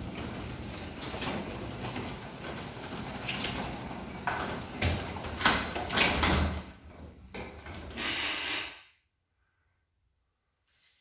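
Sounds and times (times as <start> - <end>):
garage door rumbling and rattling: 0.0 - 8.1.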